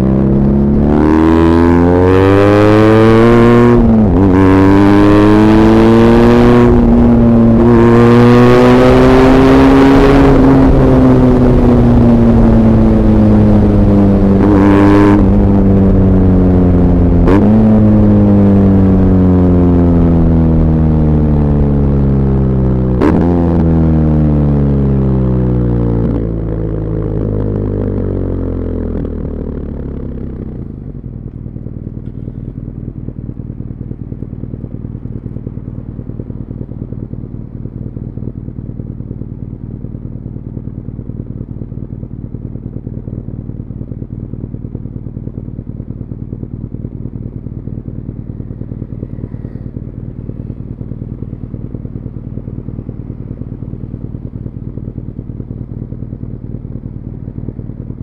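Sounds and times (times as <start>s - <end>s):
motorcycle engine idling: 25.3s - 58.0s.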